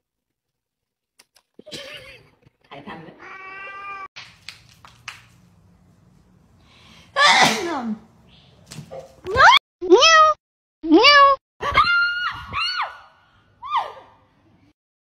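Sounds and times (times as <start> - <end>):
cat meowing: 3.2 - 4.1
person sneezing: 7.2 - 7.8.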